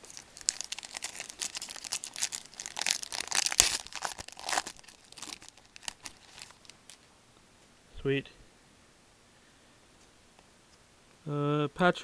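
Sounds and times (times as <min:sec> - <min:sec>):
wrapper crinkling and tearing: 0:00.0 - 0:07.1.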